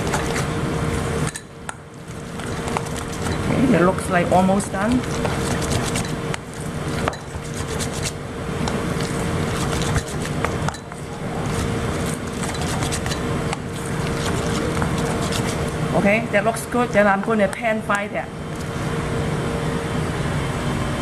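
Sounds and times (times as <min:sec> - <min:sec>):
steady background hum: 0:00.0 - 0:21.0
fork clinking in metal bowl: 0:05.2 - 0:06.3, 0:07.0 - 0:08.1, 0:09.6 - 0:11.0, 0:12.0 - 0:13.3.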